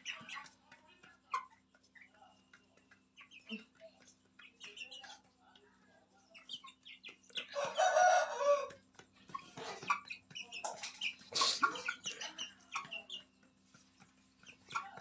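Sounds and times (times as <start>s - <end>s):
chickens clucking: 0.0s - 15.0s
chicks peeping: 0.0s - 15.0s
rooster crowing: 7.6s - 8.8s.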